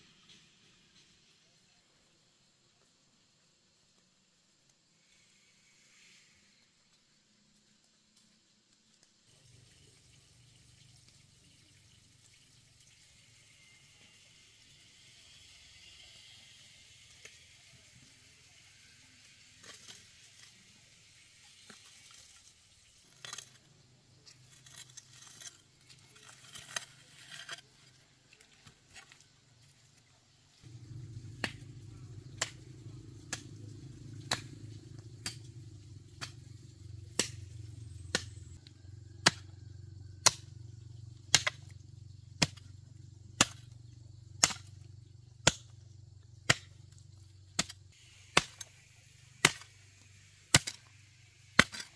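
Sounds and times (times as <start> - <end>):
hoe scraping packed earth: 21.4 - 39.8
steady low hum: 30.5 - 38.7
hoe chopping into soil: 44.4 - 44.8, 47.5 - 48.8, 49.4 - 51.0, 51.6 - 51.9.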